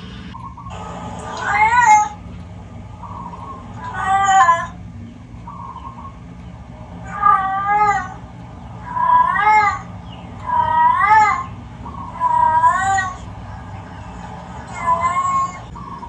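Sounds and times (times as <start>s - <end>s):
cat yowls through tv speaker: 1.4s - 2.2s, 3.8s - 4.8s, 7.0s - 8.2s, 12.2s - 13.2s, 14.7s - 15.7s.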